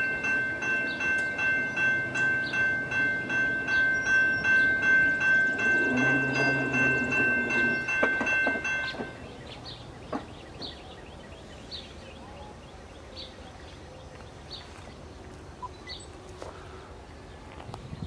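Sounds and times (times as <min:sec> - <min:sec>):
locomotive air horn: 0:05.7 - 0:08.0.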